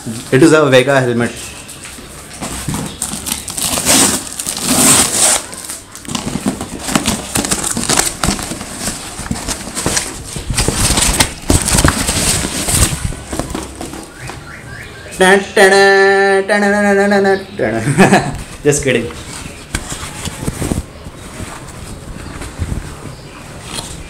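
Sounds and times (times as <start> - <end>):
cardboard rustling and scraping: 1.4 - 14.5, 18.0 - 24.0.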